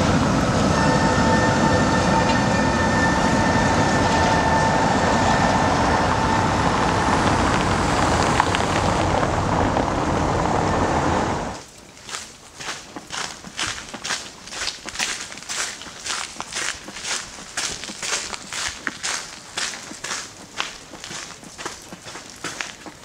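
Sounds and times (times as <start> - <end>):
high ringing tone: 0.0 - 7.1
tram rumbling on rails: 0.0 - 11.6, 13.2 - 23.0.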